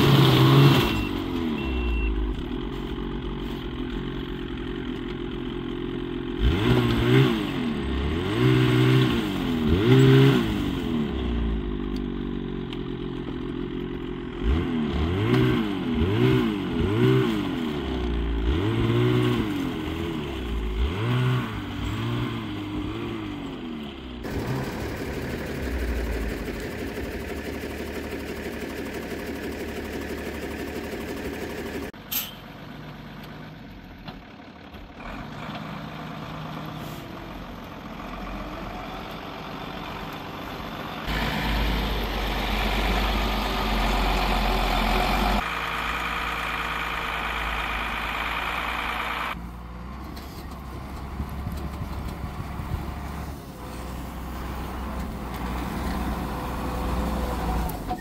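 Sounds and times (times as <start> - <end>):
diesel truck driving through snow: 0.0 - 58.0
snowmobile running: 24.2 - 31.9.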